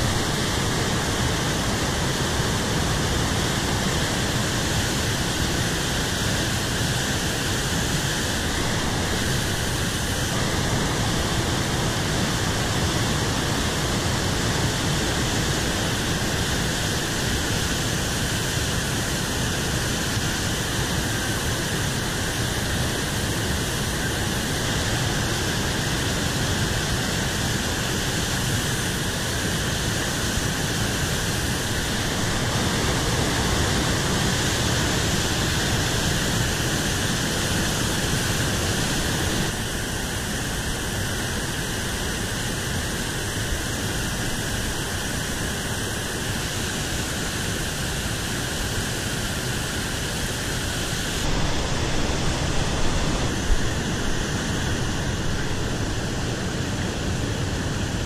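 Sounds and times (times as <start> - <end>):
water rushing over rocks: 50.2 - 57.5.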